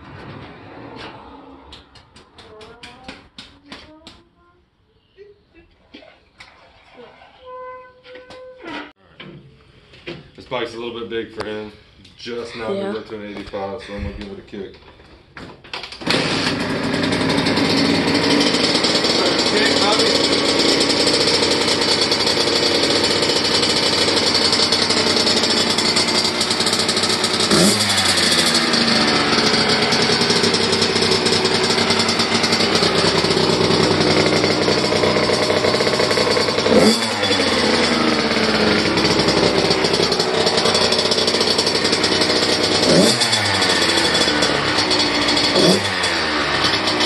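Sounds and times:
engine revving: 16.0s - 47.0s
two-stroke engine idling: 16.0s - 47.0s.

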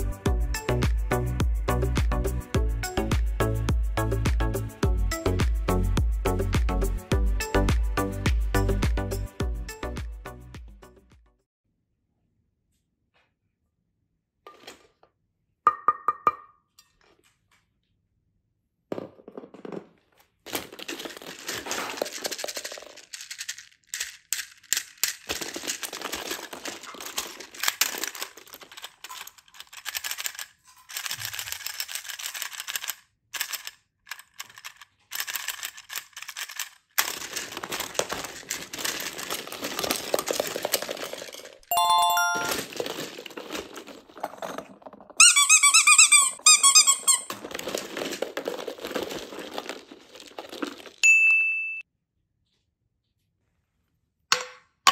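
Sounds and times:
plastic balls knocking together: 18.9s - 51.0s
short high beep: 41.7s - 42.6s.

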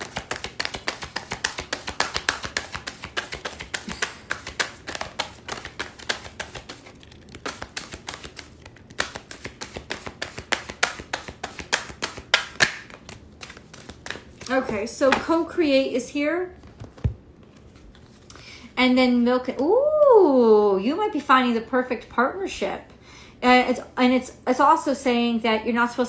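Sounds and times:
cards being shuffled: 0.0s - 15.2s.

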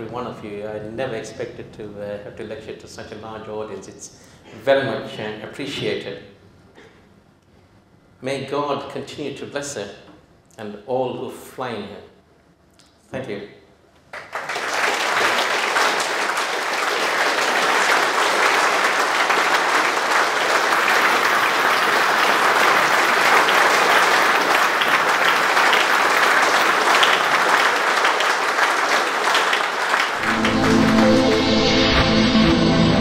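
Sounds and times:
audience applauding: 14.1s - 32.3s
music with sustained tones: 30.2s - 33.0s.

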